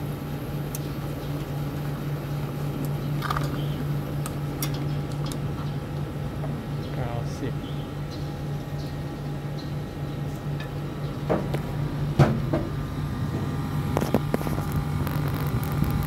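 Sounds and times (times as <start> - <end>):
air conditioner unit humming: 0.0 - 16.0.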